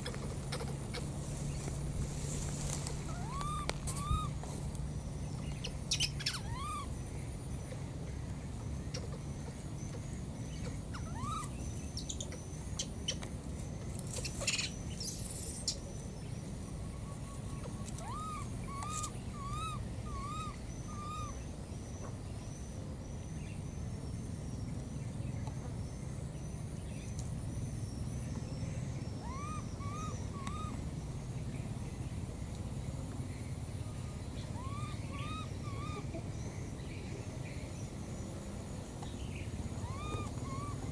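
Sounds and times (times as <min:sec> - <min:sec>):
baby monkey crying calls: 0:00.0 - 0:01.2, 0:02.9 - 0:04.4, 0:05.6 - 0:07.0, 0:10.6 - 0:13.2, 0:17.1 - 0:21.5, 0:29.1 - 0:30.8, 0:34.4 - 0:36.4, 0:39.8 - 0:40.9
twigs rustling: 0:00.0 - 0:04.8.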